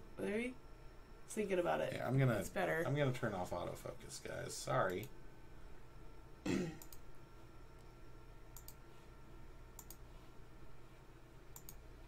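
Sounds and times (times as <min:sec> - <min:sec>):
person clearing throat: 0:06.4 - 0:06.8
faint mouse clicks: 0:06.8 - 0:07.1, 0:07.8 - 0:08.8, 0:09.7 - 0:10.1, 0:11.5 - 0:11.8.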